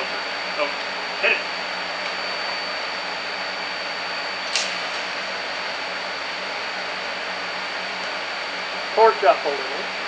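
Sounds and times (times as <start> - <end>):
welding arc strike crack: 4.5 - 5.1.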